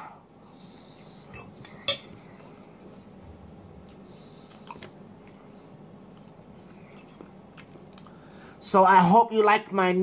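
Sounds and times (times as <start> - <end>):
faint steady hum: 0.0 - 10.0
person chewing: 1.0 - 8.4.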